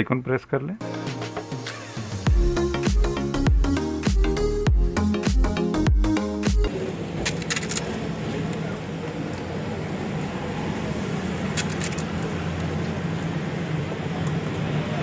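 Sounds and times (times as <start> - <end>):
background music: 0.8 - 6.9
passing traffic: 6.2 - 15.0.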